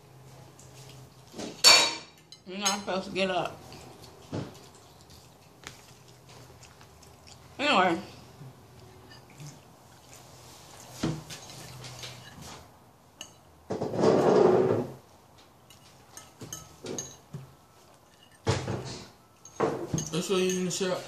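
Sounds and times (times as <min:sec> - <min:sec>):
fork scraping ceramic plate: 0:11.3 - 0:12.6.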